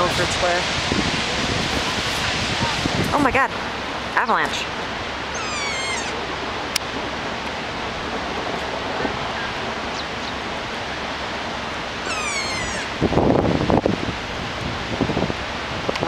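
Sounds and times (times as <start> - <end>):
rush of falling snow and water: 0.0 - 16.0
high falling call: 5.3 - 6.6, 12.0 - 13.1.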